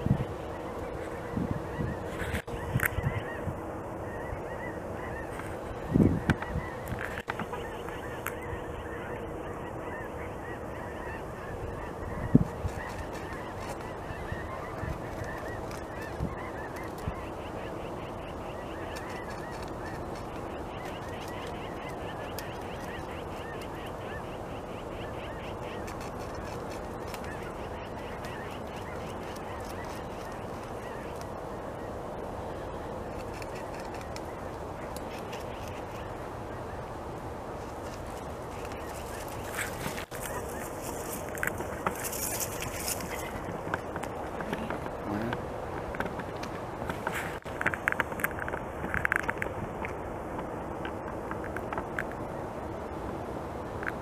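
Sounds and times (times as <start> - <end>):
geese honking: 0.0 - 36.9, 37.8 - 45.4
beaver gnawing on branch: 25.6 - 31.4, 33.1 - 36.1, 37.5 - 52.2.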